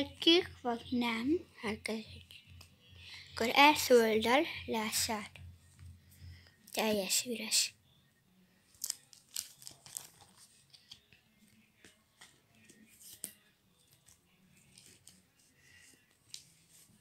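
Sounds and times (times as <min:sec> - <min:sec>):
cards and plastic pages rustling: 0:08.7 - 0:17.0.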